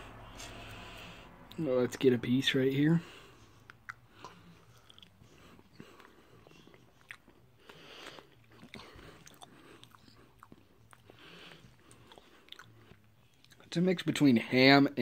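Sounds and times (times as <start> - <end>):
faint chewing: 3.0 - 13.8.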